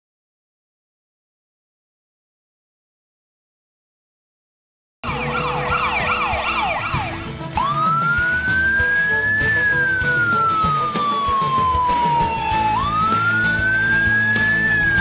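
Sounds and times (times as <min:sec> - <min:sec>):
ambulance siren: 0:05.0 - 0:15.0.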